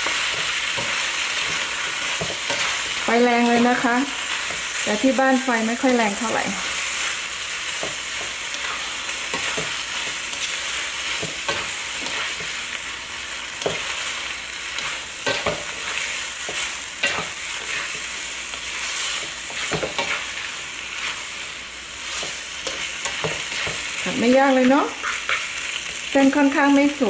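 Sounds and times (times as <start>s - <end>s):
spatula scraping and knocking a pan: 0.0s - 3.8s, 7.8s - 12.6s, 13.6s - 14.0s, 14.8s - 18.1s, 19.0s - 21.2s, 22.1s - 23.9s
noodles sizzling in a wok: 0.0s - 27.0s.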